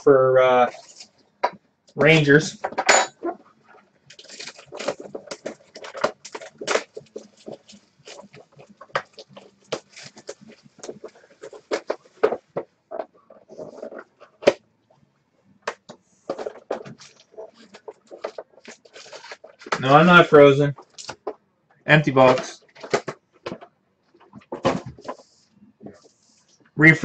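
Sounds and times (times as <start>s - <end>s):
hands handling cardboard box: 4.1s - 14.6s, 15.7s - 20.0s, 24.2s - 26.6s.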